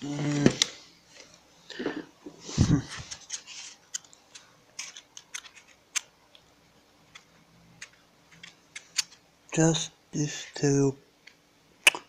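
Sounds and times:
small plastic parts clicking: 3.1s - 6.4s, 7.1s - 9.2s.

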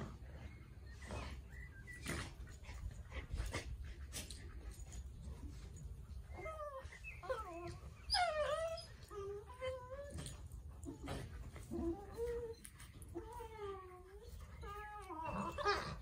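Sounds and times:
dog whining: 6.2s - 16.0s.

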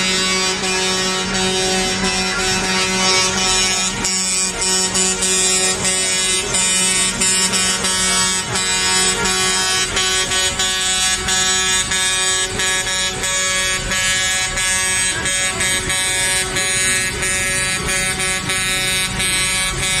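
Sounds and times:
motorcycles and cars in traffic: 0.0s - 20.0s
vehicle horns honking: 0.0s - 20.0s.

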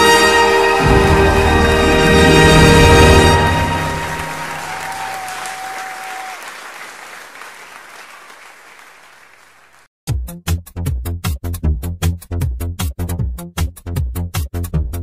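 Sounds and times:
crowd applause: 0.2s - 9.9s.

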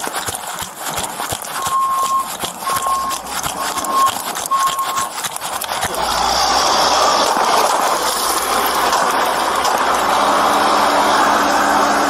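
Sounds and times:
footsteps running on pavement: 0.0s - 9.9s
backhoe engine running: 0.0s - 12.0s
short high beep: 1.6s - 5.1s.

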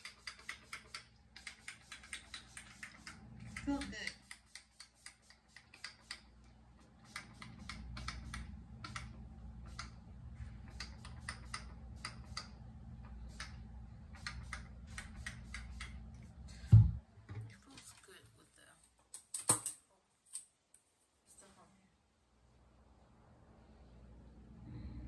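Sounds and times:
spray bottle spritzing: 0.0s - 6.3s
steady low hum: 6.1s - 17.6s, 21.9s - 25.0s.

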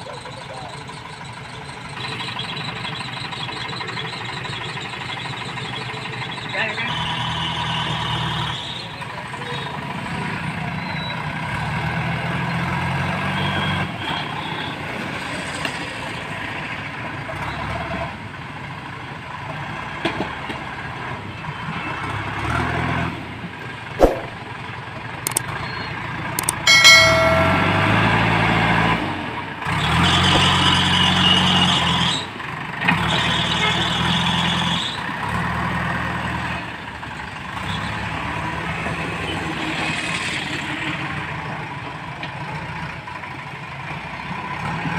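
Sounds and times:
sharp knock: 24.0s - 24.3s
ringing metal clang: 26.4s - 28.2s.

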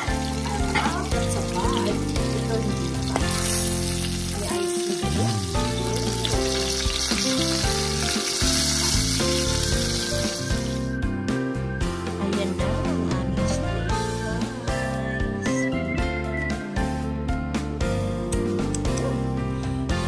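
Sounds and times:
steak sizzling in a skillet: 0.0s - 10.9s
background music: 0.0s - 20.0s.

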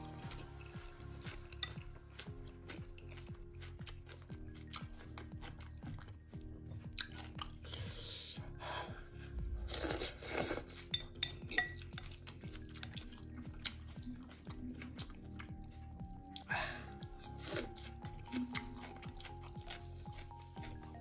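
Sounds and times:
background music: 0.0s - 21.0s
person chewing food: 0.0s - 21.0s
utensils clinking against bowl: 10.8s - 12.2s.

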